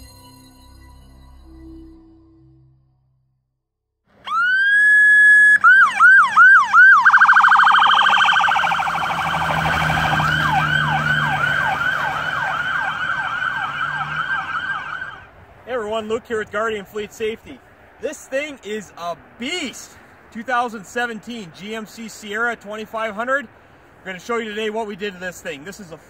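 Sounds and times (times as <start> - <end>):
low vehicle rumble: 4.1 - 18.1
electronic police siren: 4.2 - 15.3.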